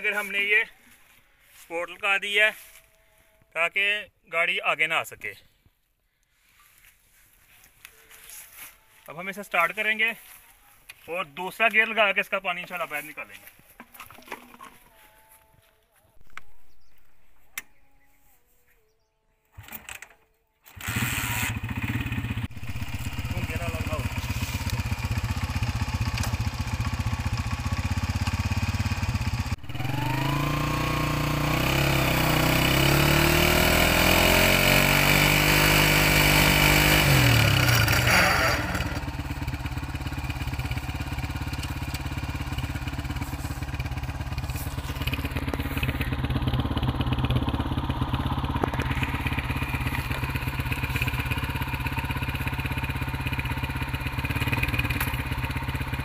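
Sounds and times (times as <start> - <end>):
motorcycle engine revving: 20.6 - 56.0.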